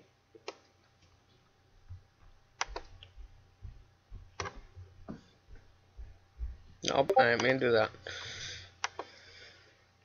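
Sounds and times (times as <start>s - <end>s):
computer mouse clicks: 0.4s - 0.7s, 2.6s - 3.2s, 4.4s - 4.6s, 8.8s - 9.1s.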